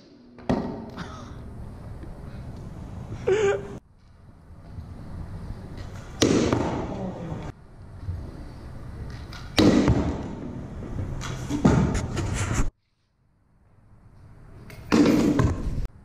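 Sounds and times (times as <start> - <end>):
scooter wheels rolling on concrete: 1.7 - 9.7
scooter landing thuds: 5.8 - 7.1, 9.5 - 12.2, 14.9 - 15.8.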